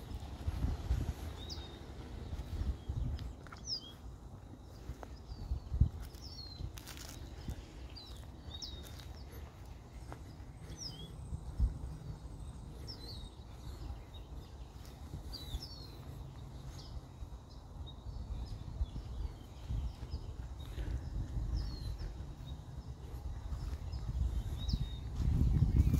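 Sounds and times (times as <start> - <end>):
small birds chirping: 0.0 - 25.9
steady low rumble: 0.0 - 25.9.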